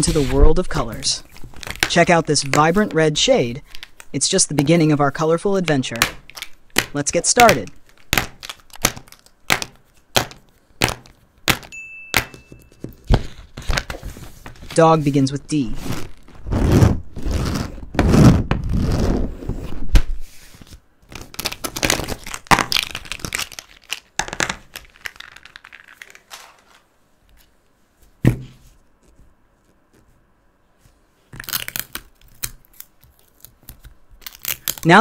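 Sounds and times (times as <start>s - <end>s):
plastic markers rustling on paper: 0.0s - 5.0s, 20.4s - 27.5s
tape roller scraping paper: 15.8s - 19.8s.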